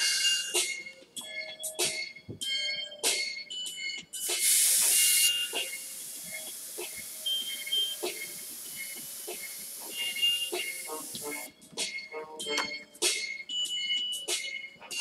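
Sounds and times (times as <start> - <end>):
airbrush spraying hiss: 4.2 - 11.5.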